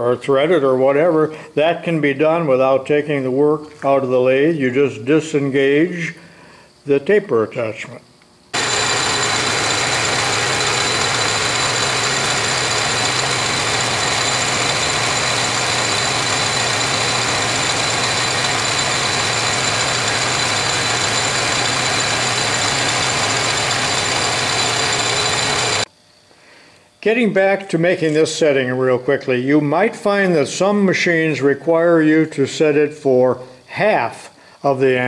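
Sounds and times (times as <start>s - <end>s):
lathe running with high whine: 8.6s - 25.9s.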